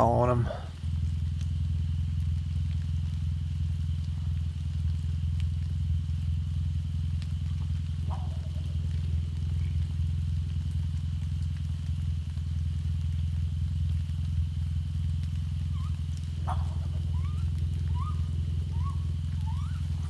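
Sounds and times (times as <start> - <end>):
steady low hum: 0.0 - 20.0
raccoons squealing: 7.4 - 9.1, 15.6 - 20.0.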